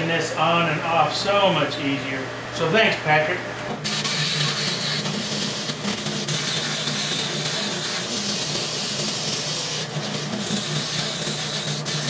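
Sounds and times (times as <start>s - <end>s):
sander motor hum: 3.6s - 12.0s.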